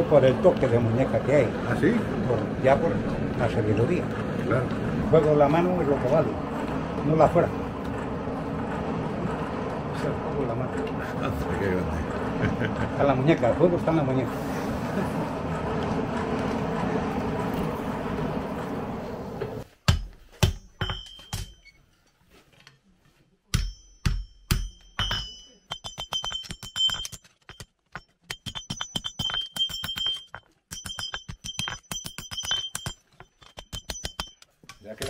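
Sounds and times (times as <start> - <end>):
hammer ringing on anvil: 19.9 - 21.7, 23.5 - 27.0, 28.4 - 35.0.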